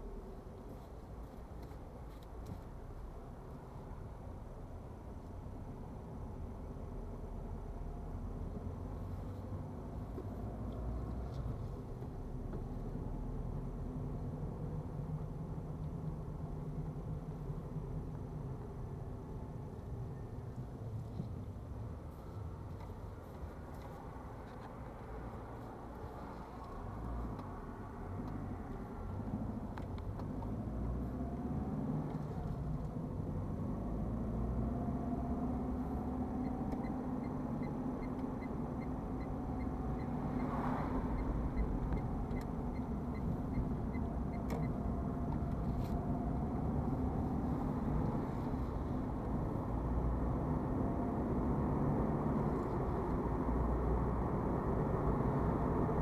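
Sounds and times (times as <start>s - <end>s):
car engine and tyre noise: 0.0s - 56.0s
turn signal ticking: 35.4s - 48.2s.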